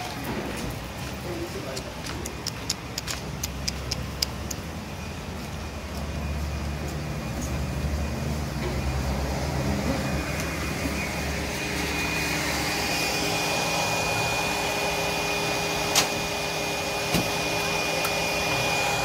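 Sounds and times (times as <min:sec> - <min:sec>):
sharp clicks: 0:01.7 - 0:04.7
small motor whirring with whine: 0:06.0 - 0:19.0.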